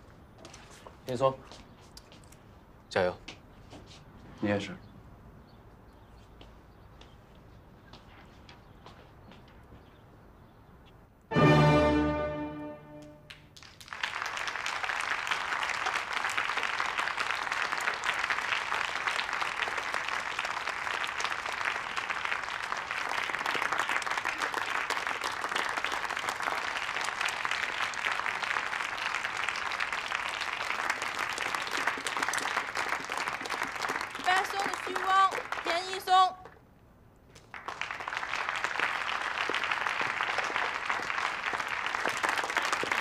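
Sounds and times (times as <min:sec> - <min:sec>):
orchestra final chord: 0:11.3 - 0:13.3
audience applauding: 0:13.0 - 0:36.3, 0:37.3 - 0:43.0.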